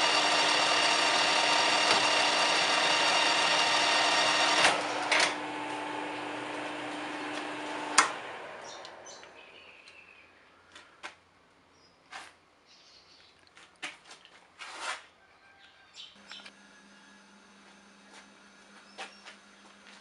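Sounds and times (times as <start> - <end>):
metal lathe whining: 0.0 - 8.9, 16.2 - 20.0.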